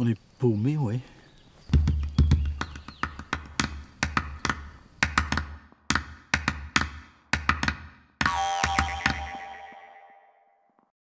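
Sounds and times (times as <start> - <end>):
percussive drum hits: 6.4 - 9.6.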